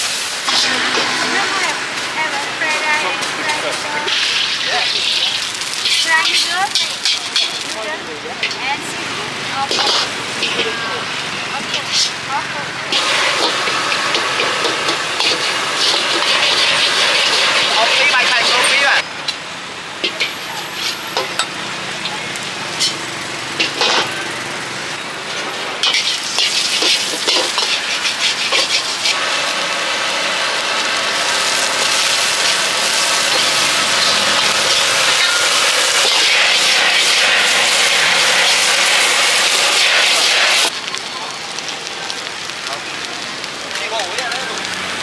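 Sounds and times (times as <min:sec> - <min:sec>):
food sizzling in a wok: 0:00.0 - 0:45.0
metal spatula scraping a pan: 0:04.0 - 0:07.8, 0:09.7 - 0:10.8, 0:12.9 - 0:19.0, 0:20.0 - 0:21.4, 0:25.8 - 0:29.2, 0:33.1 - 0:40.4.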